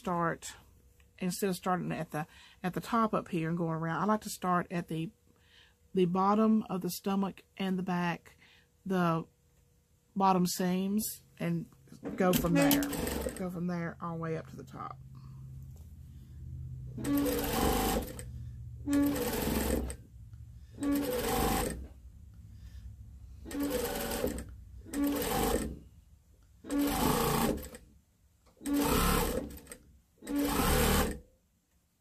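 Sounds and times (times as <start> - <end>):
sewing machine stitching: 12.2 - 13.6, 16.9 - 20.0, 20.7 - 22.0, 23.4 - 25.9, 26.6 - 27.9, 28.5 - 31.3.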